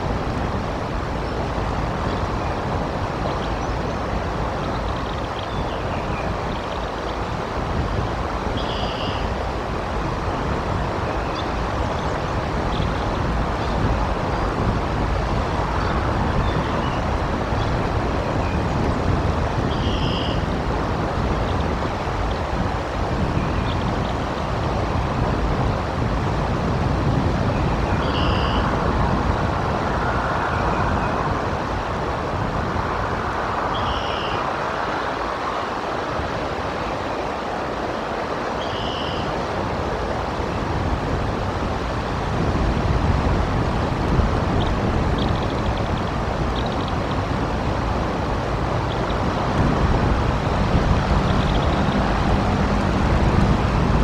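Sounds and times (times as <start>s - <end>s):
rain hiss: 0.0s - 54.0s
wind buffeting microphone: 0.0s - 54.0s.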